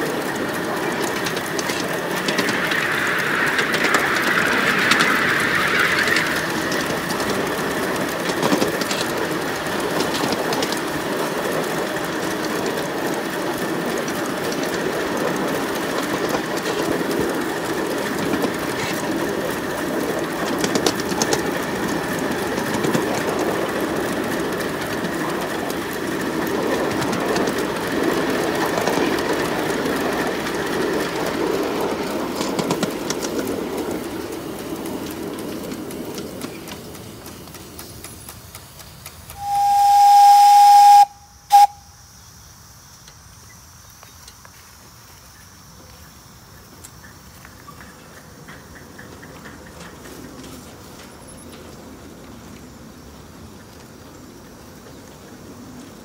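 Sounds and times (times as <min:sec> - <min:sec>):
steam hissing: 0:00.0 - 0:41.9
model steam locomotive running: 0:00.0 - 0:56.0.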